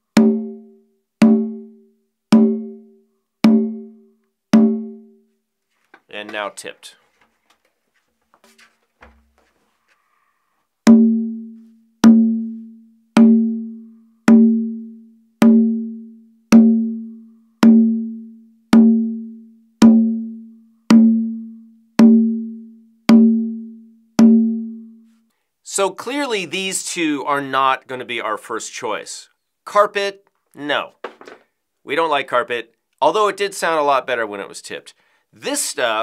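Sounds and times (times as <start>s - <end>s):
conga drum open tones: 0.1s - 4.0s, 4.6s - 5.2s, 10.9s - 25.0s.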